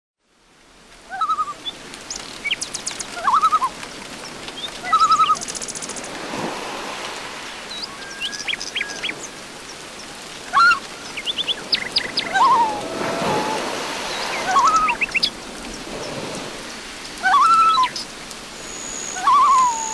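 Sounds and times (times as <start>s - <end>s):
high whistled bird notes: 7.7s - 9.4s, 11.7s - 15.3s, 18.6s - 19.9s
sweeping bird chirps: 7.7s - 9.4s, 10.6s - 13.1s, 14.0s - 15.3s, 18.6s - 19.9s
quavering bird calls: 10.5s - 15.3s.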